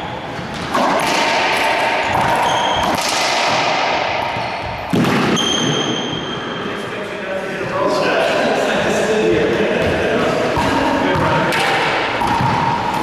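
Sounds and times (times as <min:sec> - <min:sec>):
ball cracking off racquets and walls: 0:00.4 - 0:06.0
sneakers squeaking on hardwood floor: 0:02.1 - 0:03.0, 0:04.3 - 0:06.6.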